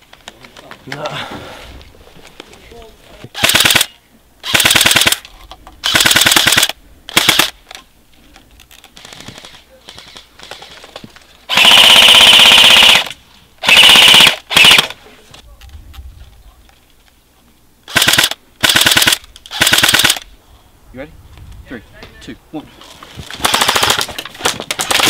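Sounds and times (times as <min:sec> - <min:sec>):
airsoft rifles firing full auto: 0:03.4 - 0:05.2, 0:05.8 - 0:07.6, 0:11.5 - 0:15.0, 0:17.9 - 0:20.3, 0:23.3 - 0:25.0.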